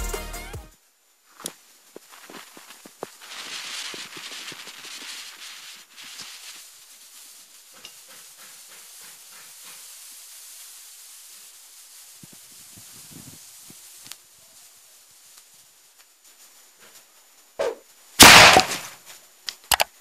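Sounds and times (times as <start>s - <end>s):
fuse hissing and crackling: 0.0s - 20.0s
footsteps crunching in snow: 1.3s - 15.6s.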